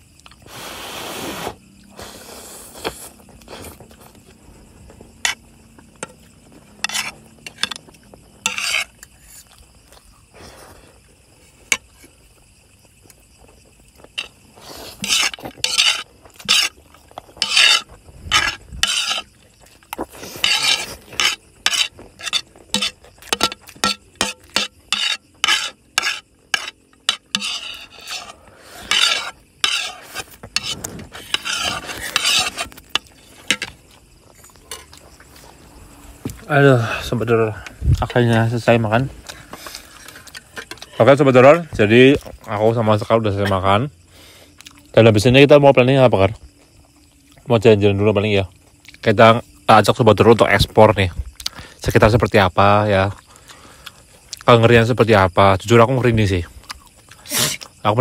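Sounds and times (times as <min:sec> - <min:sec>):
cutlery scraping and tapping plates: 0:06.0 - 0:08.9, 0:15.0 - 0:16.7, 0:20.4 - 0:30.0, 0:30.6 - 0:33.8.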